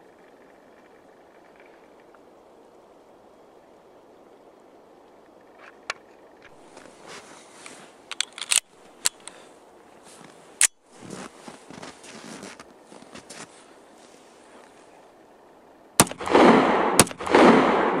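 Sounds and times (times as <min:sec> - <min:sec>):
faint outdoor noise: 0:00.0 - 0:18.0
pistol shots: 0:16.0 - 0:18.0.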